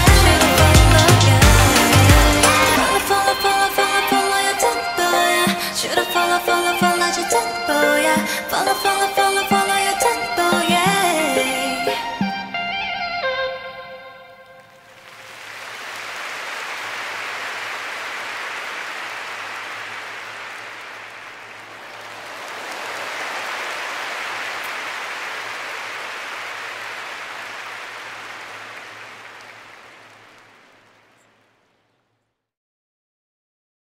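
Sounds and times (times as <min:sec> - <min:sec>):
crowd cheering and applauding: 0:00.0 - 0:07.3, 0:14.6 - 0:31.1.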